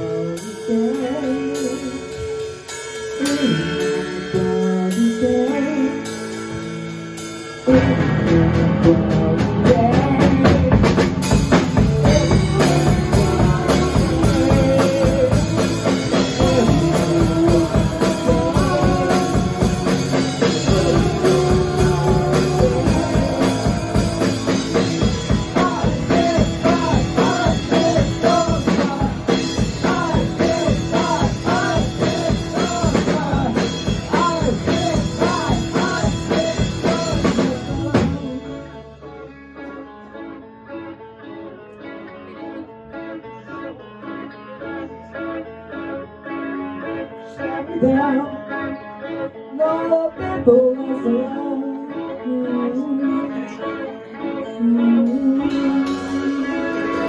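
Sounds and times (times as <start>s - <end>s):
drums: 0.0s - 40.4s, 44.7s - 57.0s
bass guitar: 0.0s - 57.0s
electric guitars: 0.0s - 57.0s.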